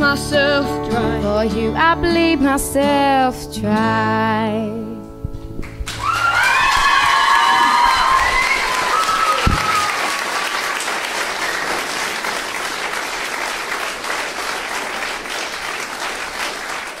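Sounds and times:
audience applauding: 5.6s - 17.0s
cheer: 5.9s - 12.0s.

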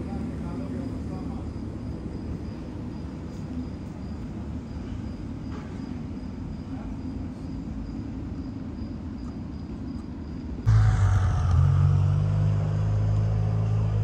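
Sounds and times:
low outdoor rumble: 10.5s - 14.0s.

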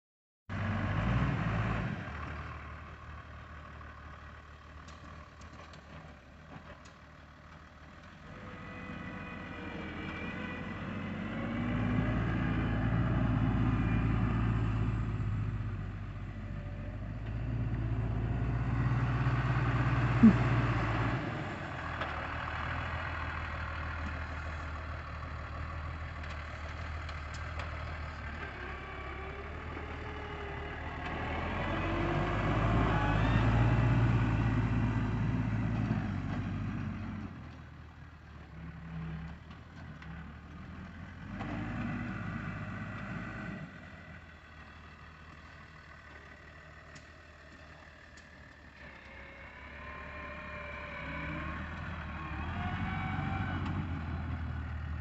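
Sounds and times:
tractor diesel engine running: 0.5s - 55.0s.

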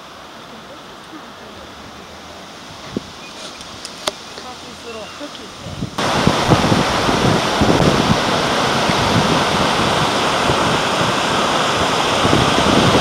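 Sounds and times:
river rushing over rocks: 0.0s - 13.0s.

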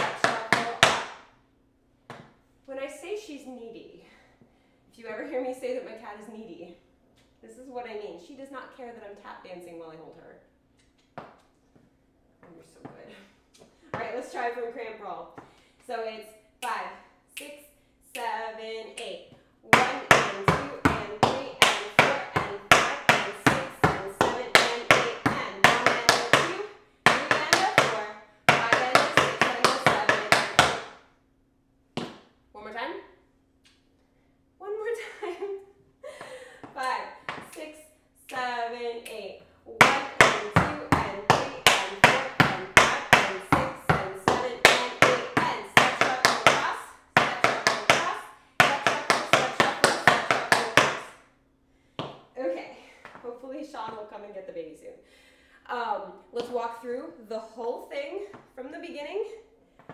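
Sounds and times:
tap shoes on wooden board: 0.0s - 1.1s, 19.7s - 30.9s, 32.0s - 32.2s, 39.8s - 51.1s.

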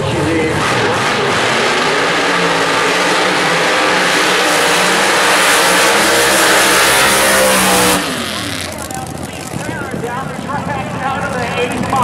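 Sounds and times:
engines roaring and tyres spinning: 0.0s - 12.0s.

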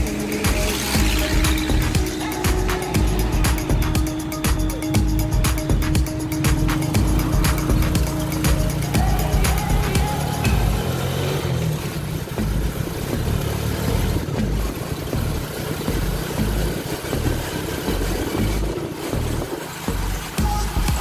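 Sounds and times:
motorcycle engine running: 0.0s - 21.0s
road noise: 0.0s - 21.0s.

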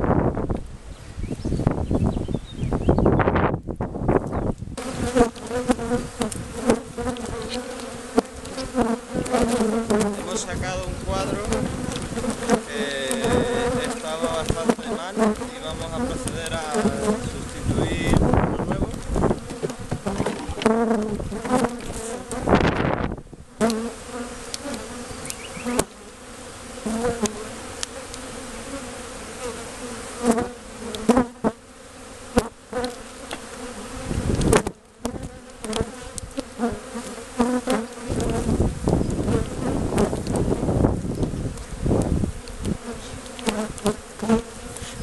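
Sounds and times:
honeybees buzzing: 0.0s - 45.0s
wooden hive frames knocking: 4.8s - 22.4s
rustling: 4.8s - 22.6s.

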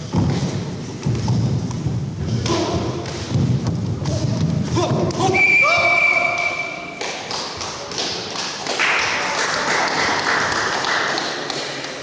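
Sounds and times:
audience applause in a large hall: 7.0s - 12.0s
scattered taps and claps: 7.0s - 12.0s.

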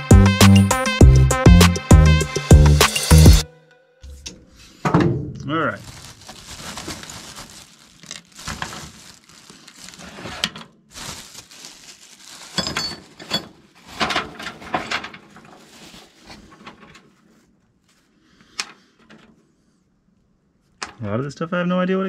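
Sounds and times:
plastic bag crinkling: 5.6s - 17.4s.

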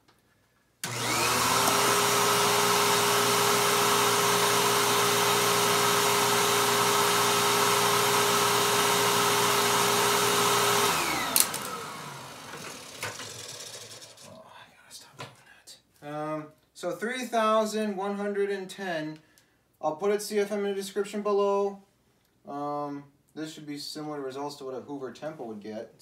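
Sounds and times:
vacuum cleaner motor whining: 0.8s - 14.3s.

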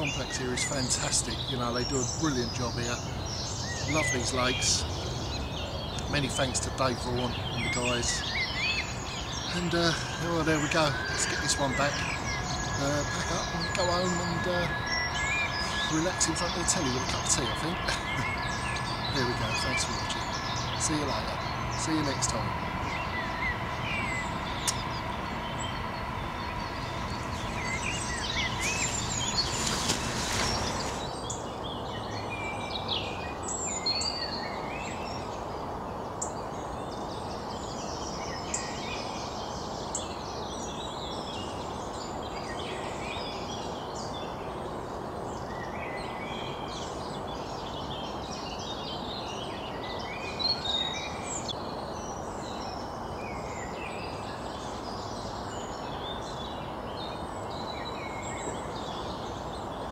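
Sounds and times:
outdoor background hiss: 0.0s - 59.9s
small birds chirping: 0.0s - 59.9s
rush of noise: 7.1s - 31.5s.

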